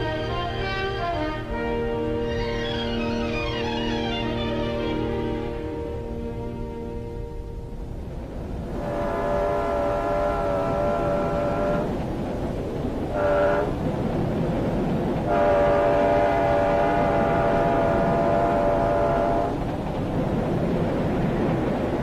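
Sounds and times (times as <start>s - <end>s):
locomotive horn blasts: 0.0s - 7.8s, 8.6s - 12.0s, 13.1s - 13.8s, 15.3s - 19.7s
moving train rumble: 0.0s - 22.0s.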